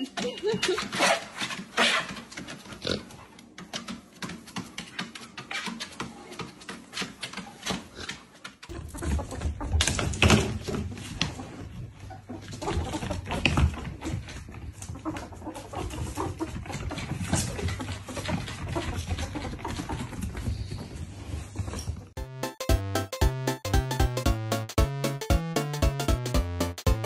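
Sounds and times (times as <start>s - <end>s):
dog claws clicking on treadmill: 0.6s - 8.7s.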